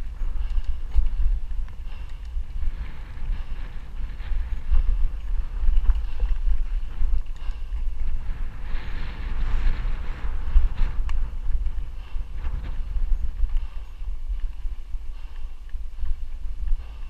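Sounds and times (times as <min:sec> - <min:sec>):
bike rattles and clicks: 0:00.0 - 0:17.0
wind rushing over microphone: 0:00.0 - 0:17.0.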